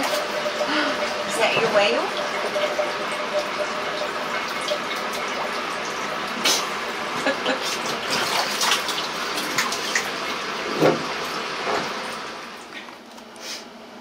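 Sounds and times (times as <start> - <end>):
water running into bathtub: 0.0 - 12.9
water splashing: 7.5 - 10.3.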